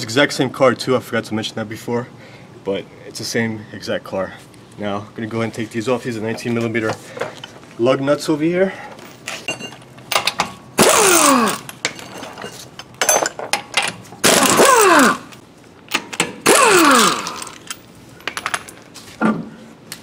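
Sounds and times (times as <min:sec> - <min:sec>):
impact wrench hammering: 0:10.2 - 0:12.0, 0:13.0 - 0:17.7.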